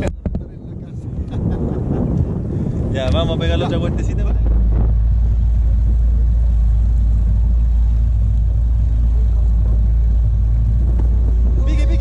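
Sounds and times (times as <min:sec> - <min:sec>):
outboard motor running: 0:01.0 - 0:12.0.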